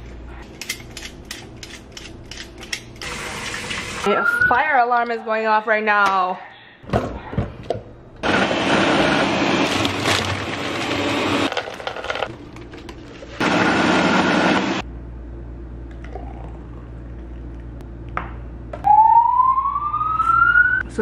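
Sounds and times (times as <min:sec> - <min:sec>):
blender running: 0:08.2 - 0:12.2, 0:13.4 - 0:14.8
siren rising in pitch: 0:18.8 - 0:20.9.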